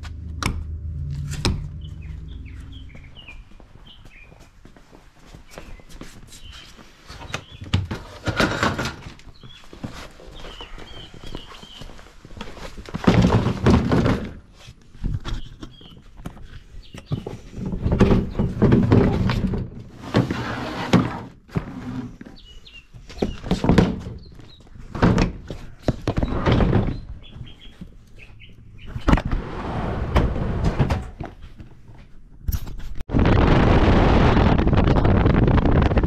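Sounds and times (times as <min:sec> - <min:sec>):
knocks and thuds: 0:13.0 - 0:14.4.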